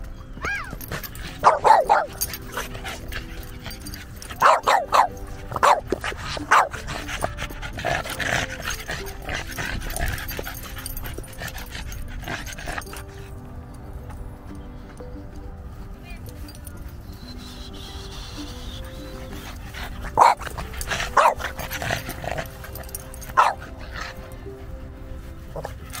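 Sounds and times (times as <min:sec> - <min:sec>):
small dog barking: 0:01.4 - 0:02.5, 0:04.4 - 0:06.8, 0:20.1 - 0:20.5, 0:21.1 - 0:21.5, 0:23.3 - 0:23.7.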